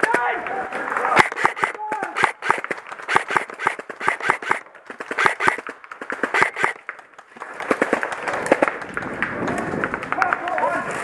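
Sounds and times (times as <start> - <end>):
airsoft gunfire pops: 1.2 - 7.0.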